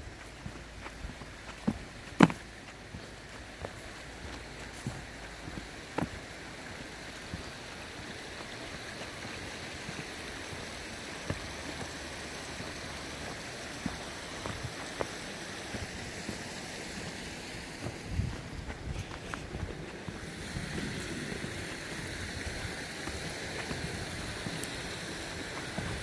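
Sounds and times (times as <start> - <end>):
stream water rushing: 0.0 - 26.0.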